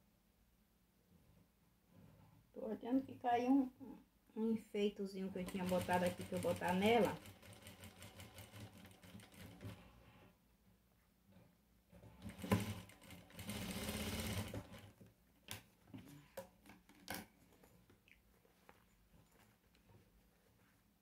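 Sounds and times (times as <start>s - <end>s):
sewing machine stitching: 5.3s - 10.2s, 12.0s - 15.0s.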